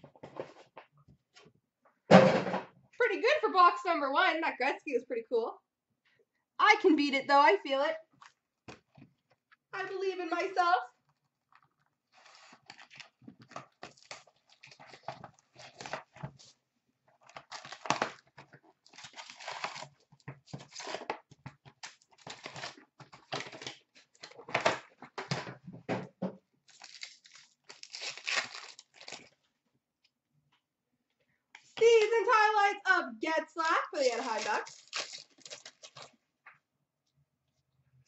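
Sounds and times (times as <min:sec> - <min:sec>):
plastic wrap tearing: 0:12.0 - 0:16.2, 0:17.3 - 0:24.5, 0:26.7 - 0:29.4, 0:34.0 - 0:36.1
foil packs rustling and crinkling: 0:12.1 - 0:16.4, 0:17.3 - 0:24.7, 0:26.7 - 0:29.4, 0:34.0 - 0:36.1.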